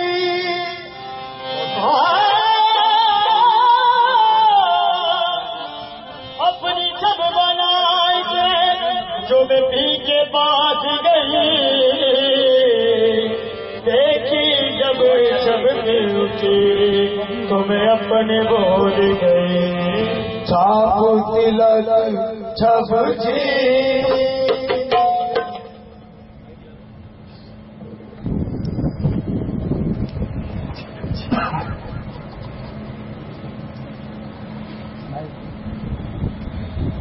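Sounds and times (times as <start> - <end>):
instrumental accompaniment: 0.0 - 27.1.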